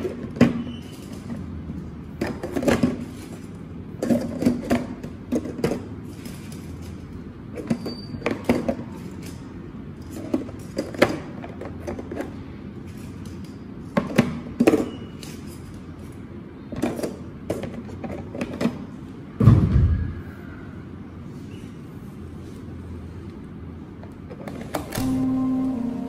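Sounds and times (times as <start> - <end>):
low steady hum: 22.6 - 26.0.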